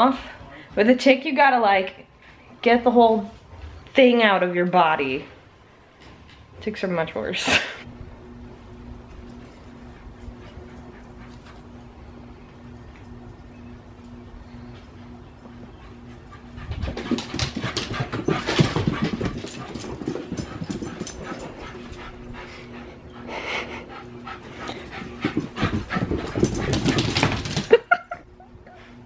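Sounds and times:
small dog panting: 15.7 - 27.1.

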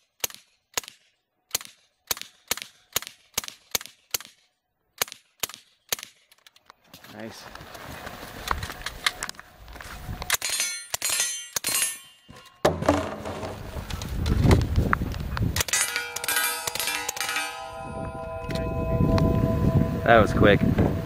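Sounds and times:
bullets clanging on steel targets: 10.3 - 13.5, 15.6 - 17.9.

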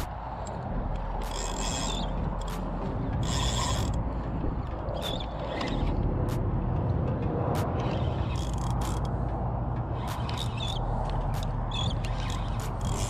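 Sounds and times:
fishing reel cranking: 0.0 - 4.0, 4.6 - 6.1, 7.8 - 9.1, 9.9 - 13.0.

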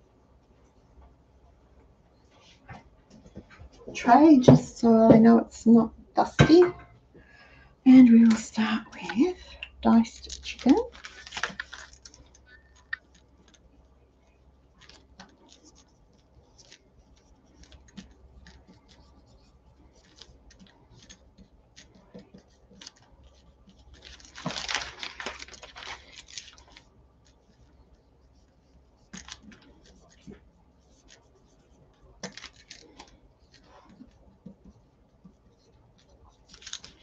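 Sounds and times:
plastic bags rustling: 8.2 - 12.9, 23.9 - 26.8.

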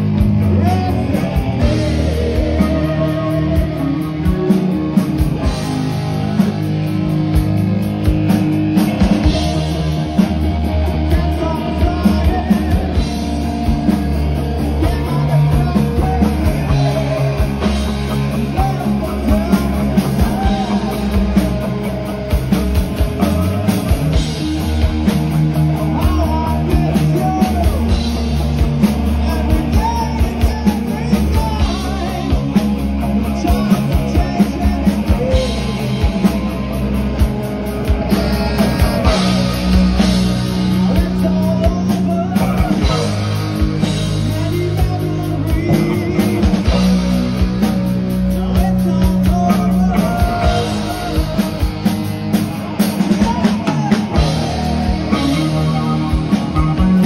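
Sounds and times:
rock band playing live: 0.0 - 57.0.

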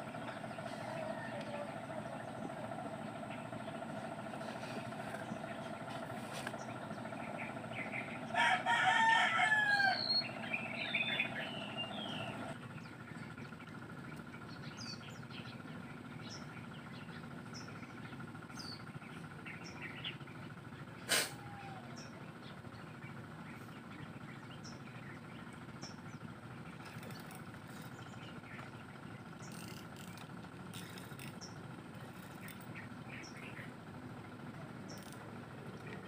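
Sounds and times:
small birds chirping: 0.0 - 36.0
steady motor hum: 0.0 - 36.0
rooster crowing: 0.6 - 2.1, 8.3 - 10.5.

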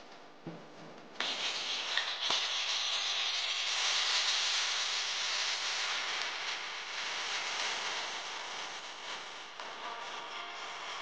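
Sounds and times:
shallots and garlic sizzling in oil: 1.2 - 9.6.

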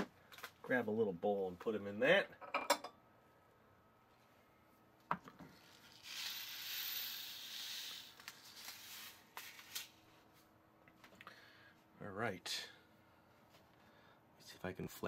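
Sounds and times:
sprinkles pouring into glass bowl: 5.6 - 9.1.

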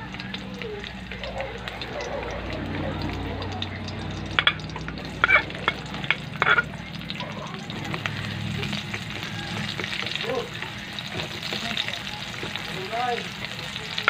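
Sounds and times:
garlic and onion sizzling in oil: 0.0 - 14.0
spatula scraping and knocking pan: 4.3 - 6.8.

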